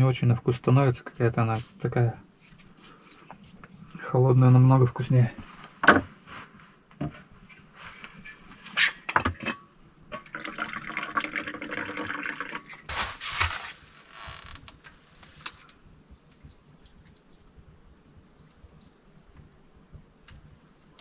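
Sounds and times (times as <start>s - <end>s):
tea pouring into a cup: 10.2s - 12.9s.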